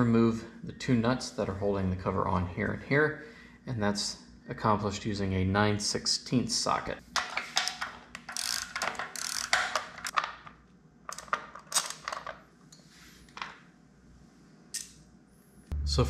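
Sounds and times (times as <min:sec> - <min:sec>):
hand ratchet clicking: 0:08.2 - 0:10.1.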